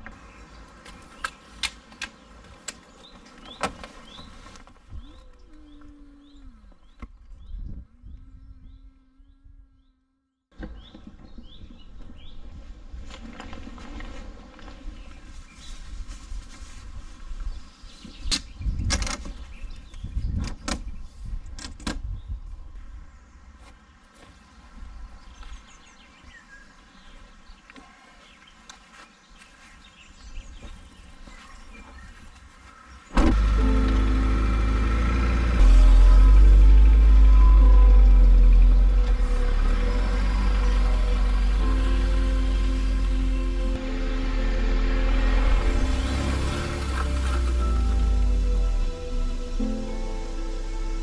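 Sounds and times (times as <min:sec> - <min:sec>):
low rumble: 0:33.3 - 0:51.0.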